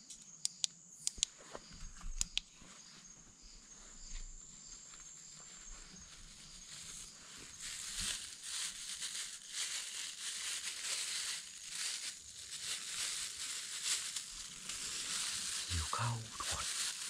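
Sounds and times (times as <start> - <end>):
plastic bag crinkling: 6.5 - 17.0.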